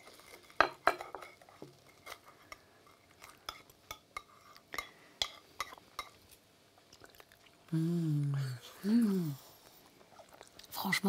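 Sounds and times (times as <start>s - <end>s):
cutlery scraping a ceramic plate: 0.2s - 6.1s.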